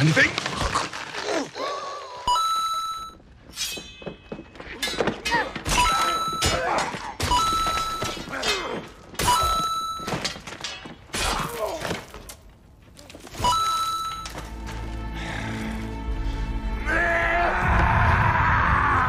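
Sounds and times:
swords clashing: 3.5s - 4.2s, 4.8s - 11.8s.

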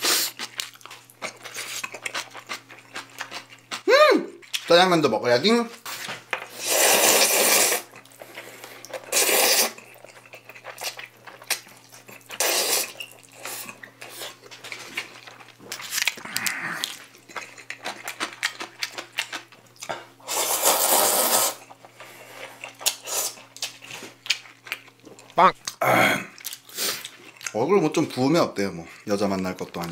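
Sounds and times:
chewing: 0.0s - 4.7s, 7.8s - 20.2s, 21.6s - 29.9s
noodles slurped: 6.5s - 19.1s, 20.2s - 23.6s.

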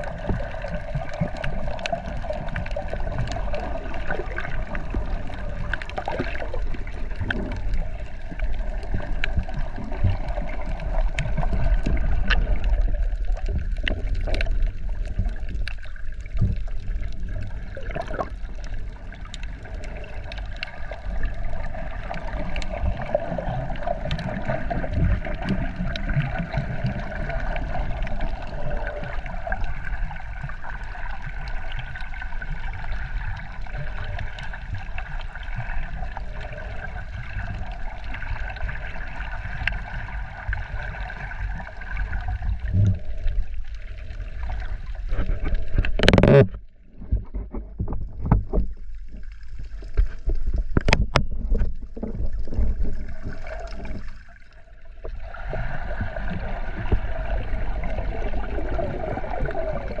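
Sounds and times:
water noise: 0.0s - 60.0s.

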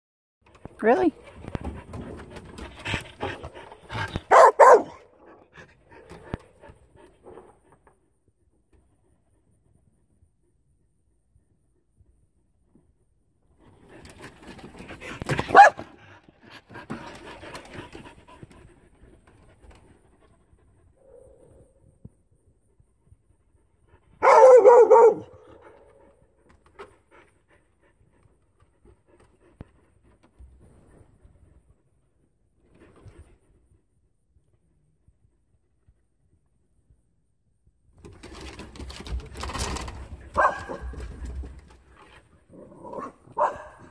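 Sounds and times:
dog barking: 4.3s - 5.0s, 15.5s - 15.8s, 24.2s - 25.5s, 40.4s - 40.9s, 43.0s - 43.9s.

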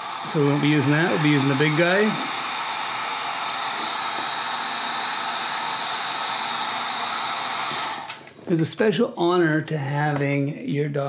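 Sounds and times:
heat gun blowing: 0.0s - 8.4s.

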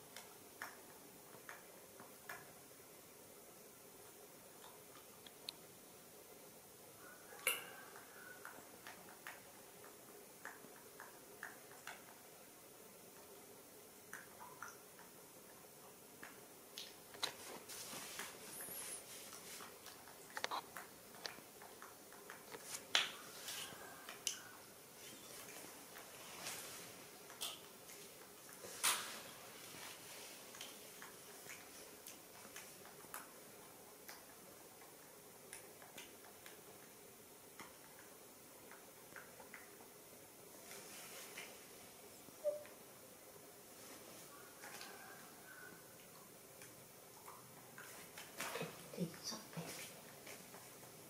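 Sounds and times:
faint ticks and light taps: 0.1s - 2.6s
high wavering chirp: 42.4s - 42.7s.

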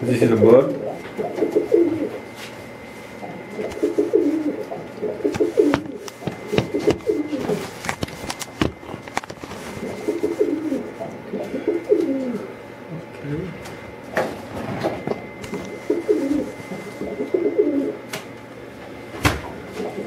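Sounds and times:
pigeon cooing: 0.4s - 2.4s, 3.1s - 7.8s, 9.6s - 12.8s, 15.0s - 18.1s, 19.6s - 20.0s
sharp knocks: 5.7s - 7.1s.

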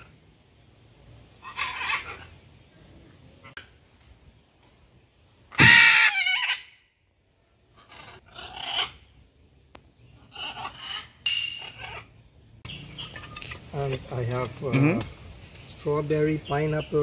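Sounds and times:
macaws squawking: 1.4s - 2.4s, 5.5s - 6.8s, 7.8s - 9.1s, 10.1s - 13.6s.

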